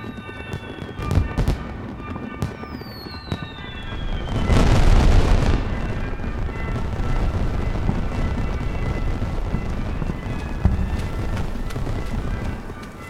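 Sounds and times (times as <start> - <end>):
fireworks bangs and whistles: 0.0 - 13.0
fireworks crackling burst: 0.0 - 13.0.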